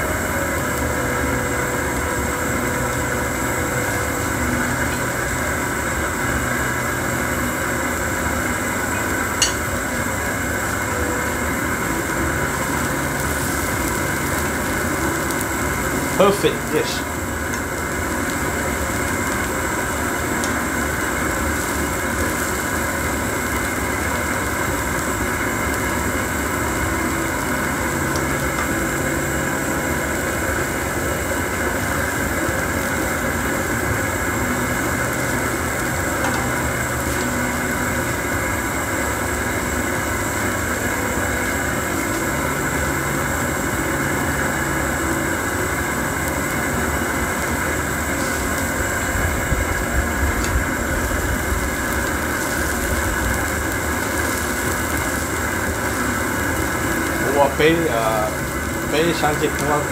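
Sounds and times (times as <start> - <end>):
steady mechanical hum: 0.0 - 59.9.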